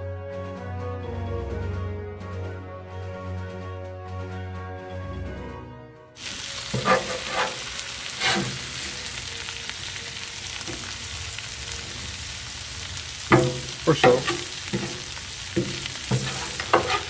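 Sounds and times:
background music: 0.0 - 17.0
metal spatula scraping: 6.2 - 9.2, 13.3 - 17.0
food sizzling on a griddle: 6.2 - 17.0.

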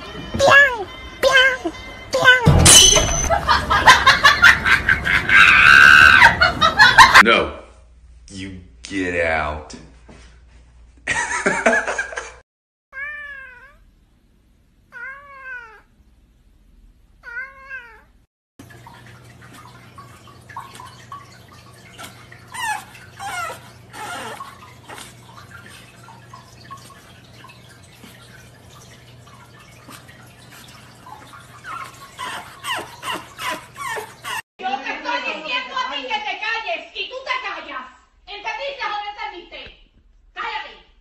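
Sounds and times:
cat meowing: 12.9 - 13.9, 14.9 - 15.9, 17.2 - 18.2.

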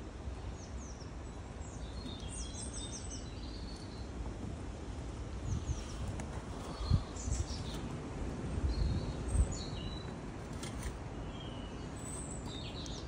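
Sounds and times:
small birds chirping: 0.4 - 4.2, 5.4 - 8.0, 8.6 - 13.0
low rumbling microphone noise: 4.5 - 10.1.

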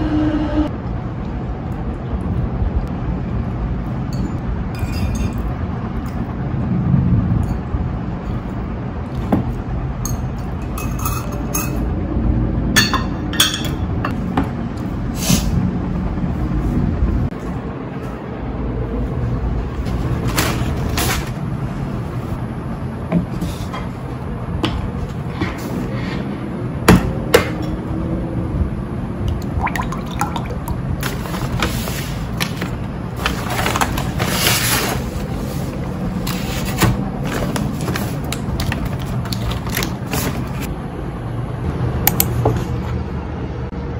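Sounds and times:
paper bag rustling: 19.8 - 21.7, 31.0 - 40.7
juice pouring into a glass: 29.4 - 30.8.

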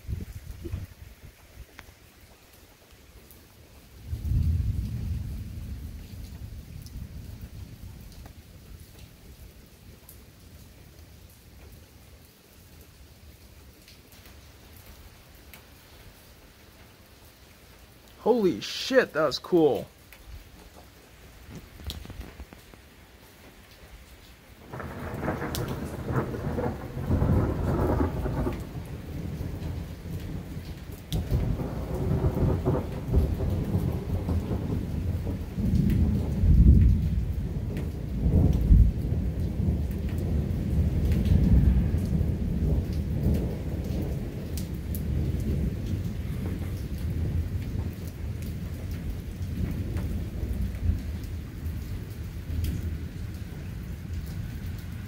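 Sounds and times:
thunder rumbling: 4.1 - 7.8, 24.6 - 30.6, 31.2 - 51.2.

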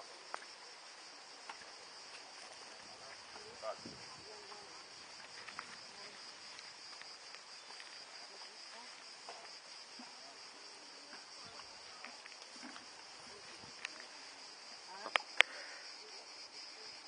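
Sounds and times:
high-pitched insect chorus: 0.0 - 17.0
faint clicks: 15.1 - 15.6.

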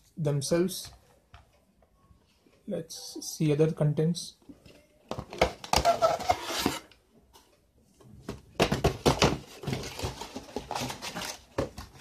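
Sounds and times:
cardboard box rubbing and scraping: 5.9 - 6.9.

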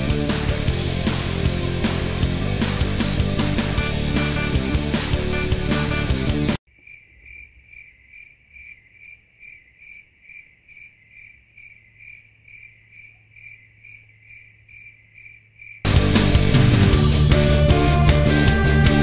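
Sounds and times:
rock music: 0.0 - 6.6, 15.9 - 19.0
cricket chirping: 6.7 - 15.9.

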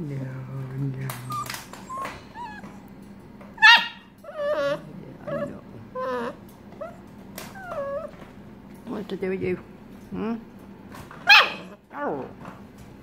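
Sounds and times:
puppies whimpering and yipping: 1.2 - 3.0, 3.6 - 8.2
puppy yelping: 1.2 - 3.0, 3.6 - 8.2, 11.2 - 12.3.

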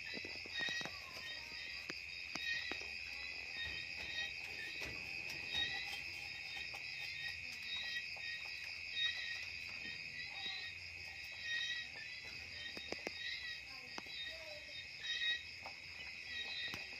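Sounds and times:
crickets chirring: 0.0 - 16.9
rabbit rustling hay: 2.4 - 12.7.

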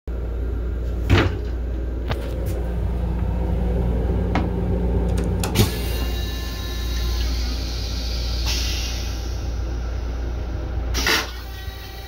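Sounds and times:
railcar rumble: 0.1 - 12.0.

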